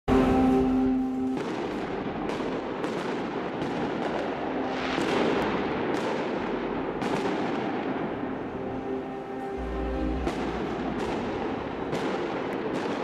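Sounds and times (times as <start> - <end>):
background din: 0.1 - 2.8, 7.8 - 12.9
fireworks bangs: 0.1 - 13.0.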